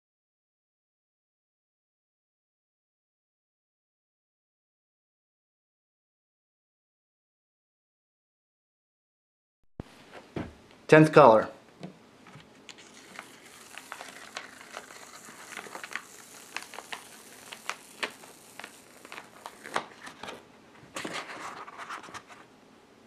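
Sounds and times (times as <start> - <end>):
paper crackling off inked block: 12.7 - 20.4
paper rustling: 12.7 - 22.5.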